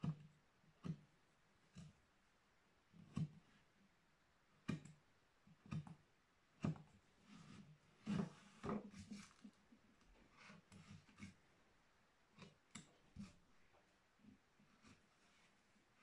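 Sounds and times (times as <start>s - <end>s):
carving tool scraping wood: 0.0s - 2.1s, 2.9s - 3.7s, 4.5s - 6.0s, 6.6s - 11.5s, 12.3s - 13.5s, 14.3s - 15.6s
carving tool clicks in wood: 0.1s - 1.1s, 4.6s - 5.0s, 5.6s - 6.0s.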